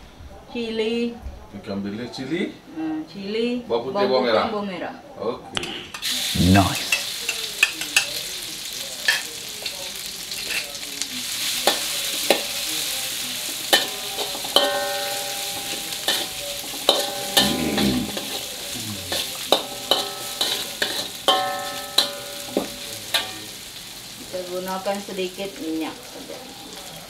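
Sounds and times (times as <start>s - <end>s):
food sizzling in oil in a wok: 6.0s - 27.0s
wok ringing: 13.7s - 23.7s.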